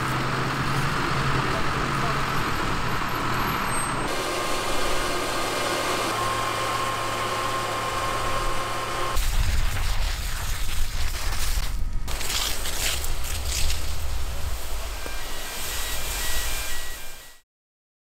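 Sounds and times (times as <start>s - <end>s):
diesel engine drone: 0.0s - 10.7s, 11.6s - 17.4s
steady high tone: 14.7s - 17.4s.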